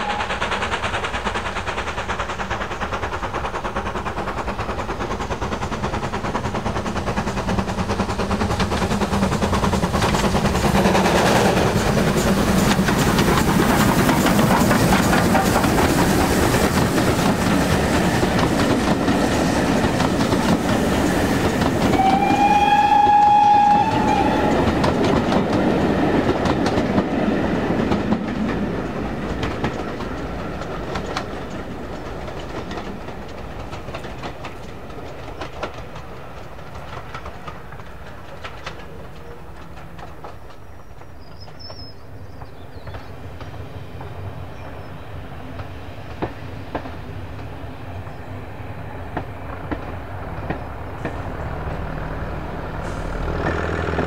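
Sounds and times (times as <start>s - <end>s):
steam locomotive whistle: 0.0s - 0.5s, 21.8s - 24.8s
train wheels clattering over rail joints: 0.0s - 48.3s, 49.0s - 54.0s.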